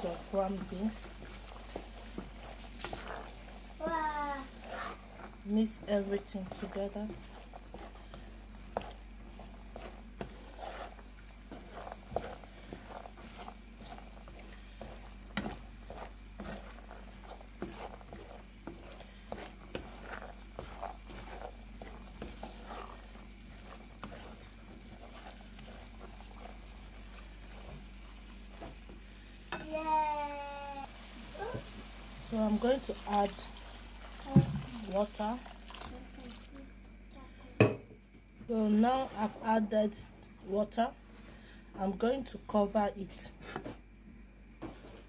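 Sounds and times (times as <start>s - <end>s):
spatula scraping pot: 0.0s - 30.3s, 38.5s - 40.0s, 43.1s - 43.8s.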